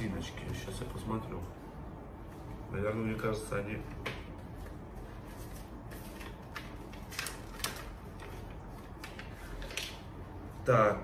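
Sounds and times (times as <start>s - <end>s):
low background hum: 0.0s - 11.0s
paper pages rustling: 4.4s - 10.1s.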